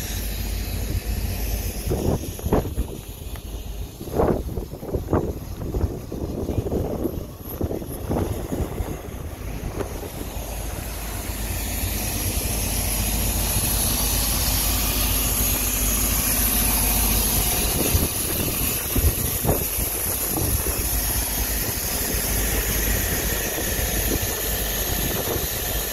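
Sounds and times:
highway traffic rumble: 0.0 - 25.9
wind on microphone: 1.8 - 10.9, 16.6 - 25.9.

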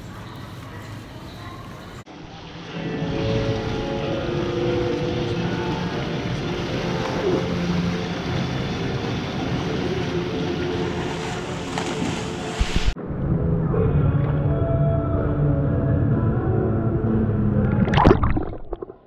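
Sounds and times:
echoing indoor pool din: 0.0 - 19.0
swimmers splashing: 3.6 - 13.0.

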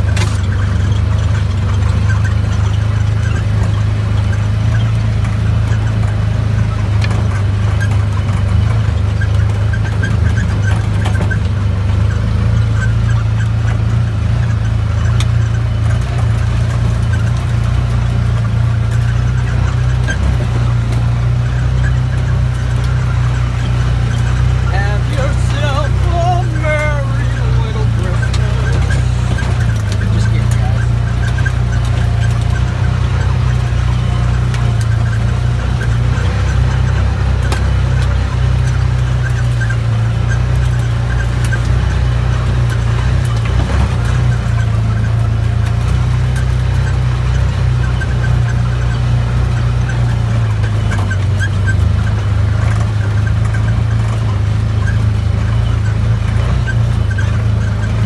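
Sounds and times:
utility vehicle engine droning: 0.0 - 58.0.

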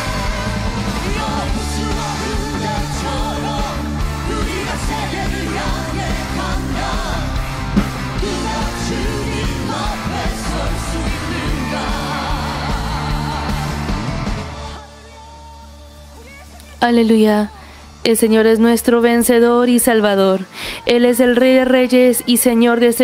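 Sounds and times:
band with strong bass line: 0.0 - 17.4.

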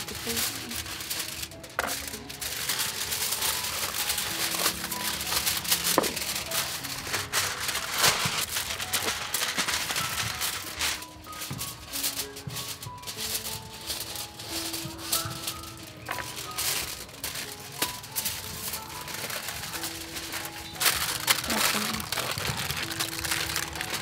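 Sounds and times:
aluminium foil crinkling: 0.0 - 24.0
soft background music: 0.0 - 24.0.

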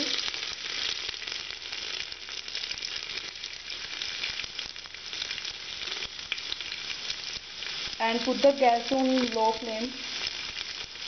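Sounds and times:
garlic sizzling in hot oil: 0.0 - 11.0.

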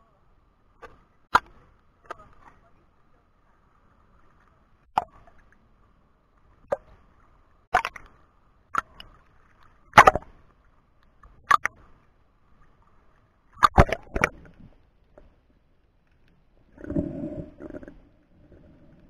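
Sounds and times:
faint steady tone: 0.0 - 13.6
sea water splashing: 11.2 - 14.8, 16.7 - 19.0.

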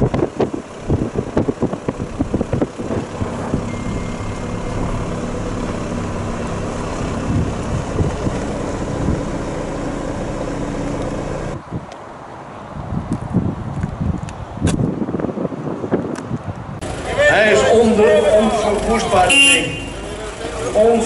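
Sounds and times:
wind noise: 0.0 - 9.7, 10.9 - 16.8
truck diesel engine at low revs: 0.0 - 11.7, 16.7 - 21.0.

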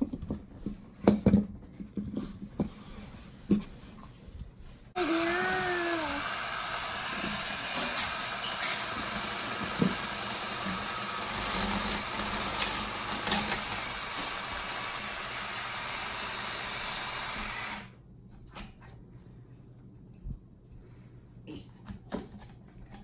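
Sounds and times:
toy blender motor whirring: 5.0 - 18.0.

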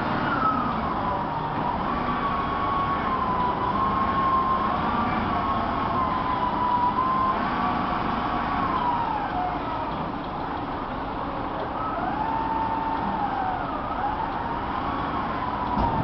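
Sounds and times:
vehicle engine rumble: 0.0 - 16.0.

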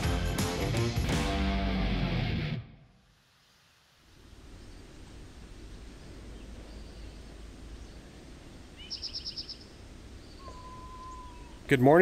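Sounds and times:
steady low rumble: 4.1 - 8.8
faint bird chirps: 5.6 - 11.7
small bird trilling: 8.8 - 11.7.

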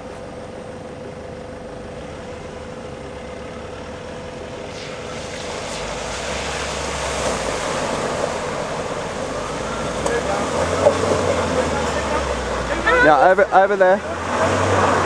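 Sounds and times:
off-road vehicle engine climbing: 0.0 - 15.0
tyres pushing through mud: 4.0 - 15.0.

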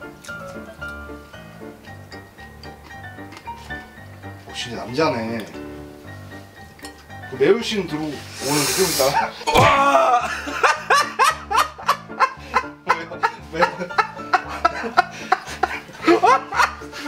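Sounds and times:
light background music: 0.0 - 17.0
man laughing: 9.1 - 17.0.

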